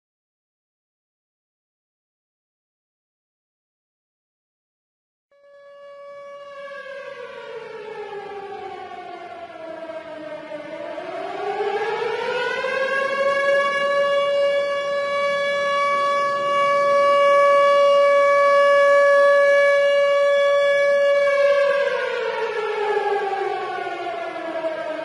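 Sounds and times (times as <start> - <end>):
warning siren wailing: 5.4 - 25.0.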